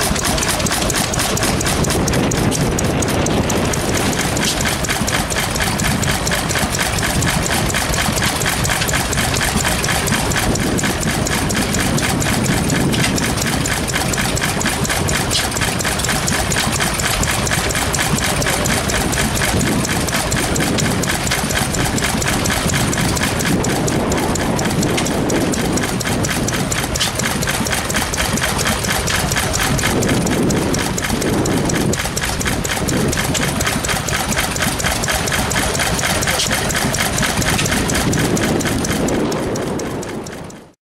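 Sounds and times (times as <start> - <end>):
stationary engine running: 0.0 - 40.8.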